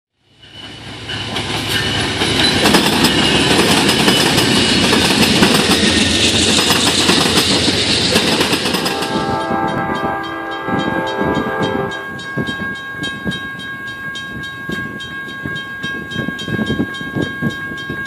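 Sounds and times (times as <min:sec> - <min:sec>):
diesel train passing: 0:00.2 - 0:16.1
wheels clicking over rail joints: 0:00.6 - 0:09.0.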